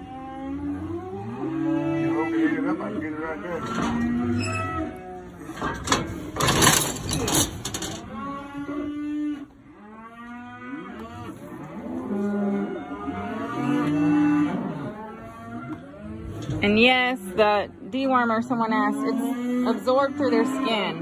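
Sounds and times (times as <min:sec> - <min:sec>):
cows mooing: 0:00.0 - 0:21.0
knocks and rattling: 0:05.5 - 0:08.2.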